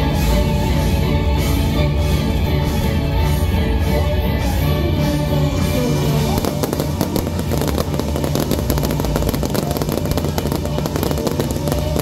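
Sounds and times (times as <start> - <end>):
fireworks crackling and popping: 6.1 - 12.0.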